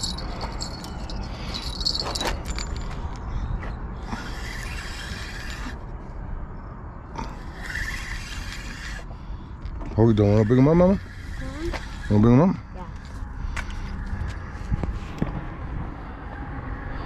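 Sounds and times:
fishing reel whirring: 0:04.0 - 0:05.8, 0:07.4 - 0:09.1.

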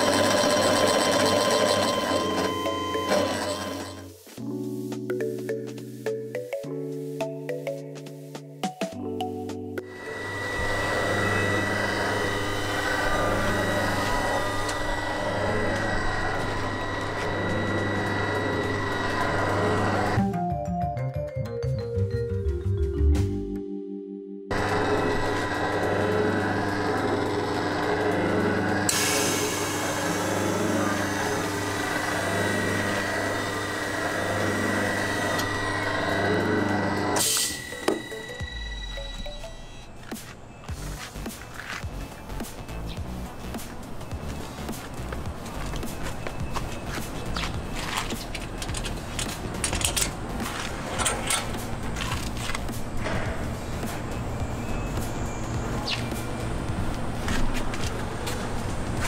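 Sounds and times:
high machine whine: 0:00.0 - 0:04.2, 0:09.8 - 0:20.2, 0:24.5 - 0:59.0
low machine hum: 0:09.9 - 0:20.2, 0:24.5 - 0:41.2
brief music: 0:37.2 - 0:41.3.

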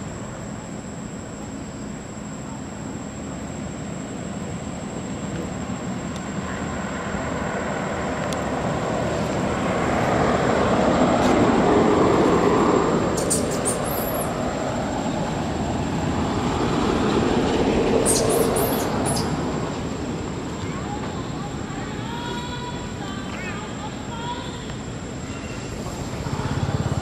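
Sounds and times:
vehicle engine and tyres rumbling: 0:03.0 - 0:27.0
short high squeaks: 0:13.2 - 0:14.3.

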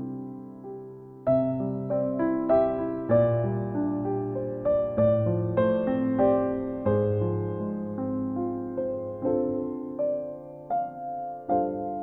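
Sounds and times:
slow piano notes and chords: 0:00.0 - 0:12.0.

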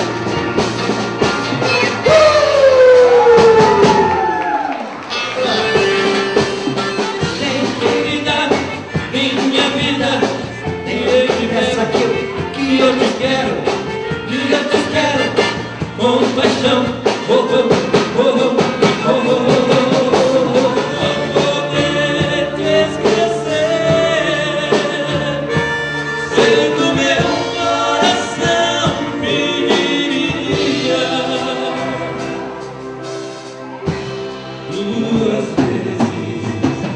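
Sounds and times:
live band with drums and guitar: 0:00.0 - 0:36.9
two men singing a duet: 0:06.9 - 0:32.6, 0:34.6 - 0:36.9.

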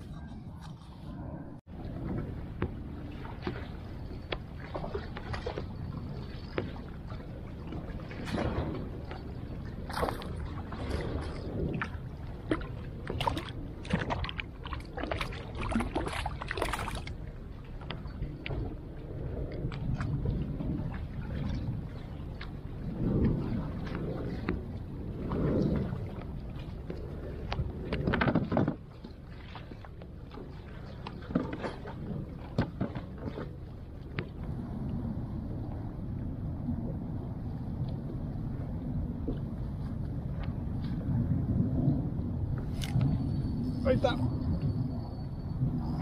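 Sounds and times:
wind rumble on microphone: 0:00.0 - 0:46.0
waves slapping against kayak hull: 0:01.9 - 0:18.8, 0:19.6 - 0:35.0.

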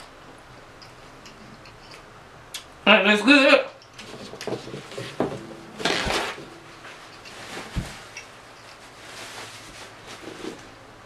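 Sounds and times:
paper napkin rustling: 0:05.8 - 0:10.8.

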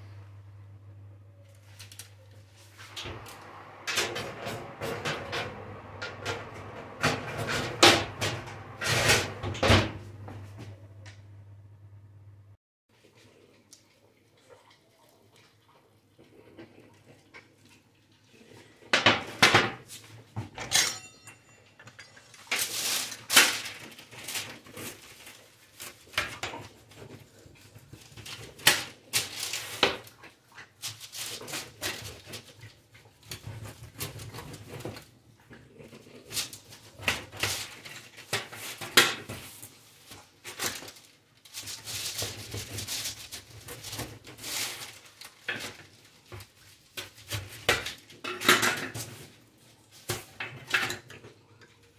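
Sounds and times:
kitchen clatter and knocks: 0:03.0 - 0:10.8, 0:18.9 - 0:25.0, 0:45.4 - 0:49.4, 0:50.0 - 0:51.4
dishes and cutlery clinking: 0:20.5 - 0:22.7.

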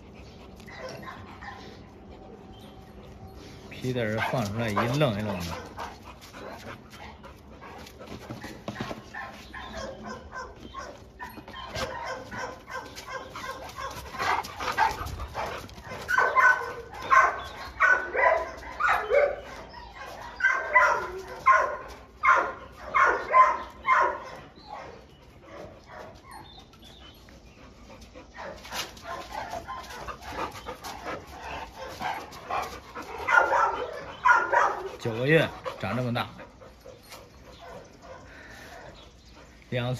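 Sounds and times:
dog barking: 0:09.6 - 0:11.0, 0:11.8 - 0:14.0, 0:16.1 - 0:19.4, 0:20.4 - 0:24.9, 0:33.2 - 0:34.9.

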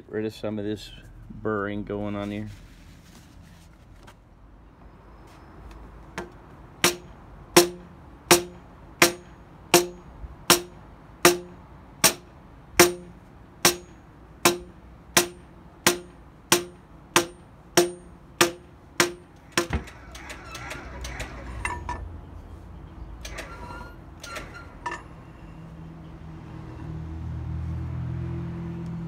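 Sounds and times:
hammer blows on steel: 0:06.8 - 0:19.8.

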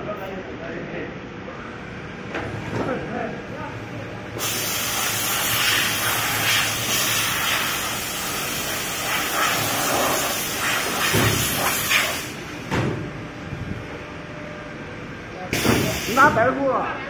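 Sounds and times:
hiss of rushing air: 0:04.4 - 0:12.4, 0:15.6 - 0:16.3.

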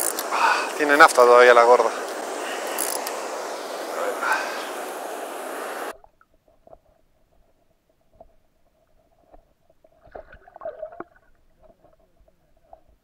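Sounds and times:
knocks and gurgles: 0:05.9 - 0:13.0
soft underwater clicks and knocks: 0:05.9 - 0:13.0.

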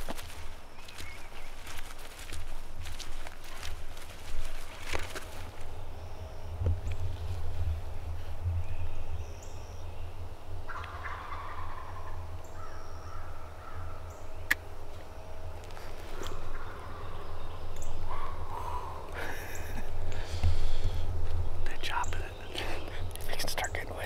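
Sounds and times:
turkeys gobbling: 0:10.4 - 0:14.9, 0:15.7 - 0:20.8.

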